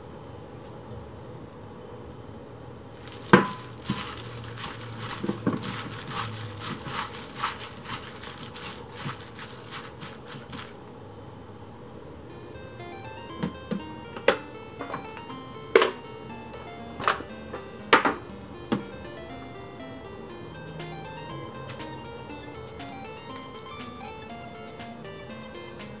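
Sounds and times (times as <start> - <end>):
cucumbers squishing in bowl: 3.0 - 10.8
plastic glove crinkling: 3.0 - 10.8.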